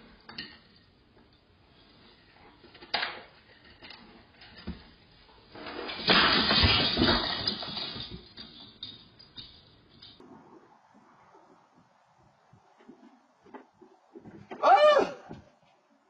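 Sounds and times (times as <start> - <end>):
christmas tree crashing to floor: 5.5 - 9.0.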